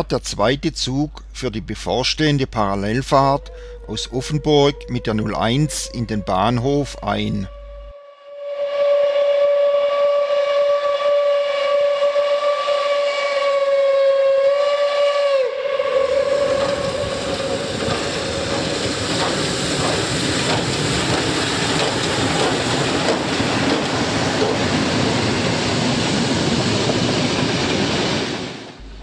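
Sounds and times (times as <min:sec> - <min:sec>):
steam locomotive whistle: 0:03.2 - 0:18.7
steam hissing: 0:08.8 - 0:28.9
train wheels clattering: 0:16.2 - 0:28.2.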